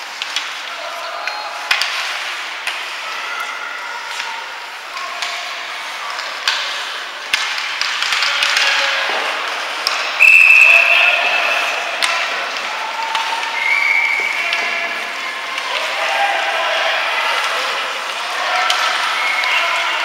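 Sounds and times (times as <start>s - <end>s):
hockey sticks and puck clacking: 0.0s - 20.0s
referee's whistle blast: 10.2s - 11.6s
crowd shouting: 10.2s - 20.0s.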